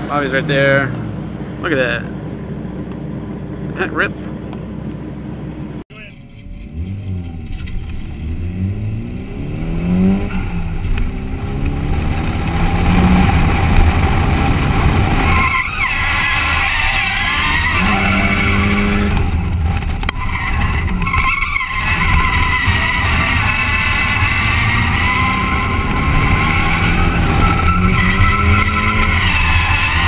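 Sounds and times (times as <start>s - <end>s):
car engine revving: 0.0s - 30.0s
tyre squeal: 15.2s - 30.0s.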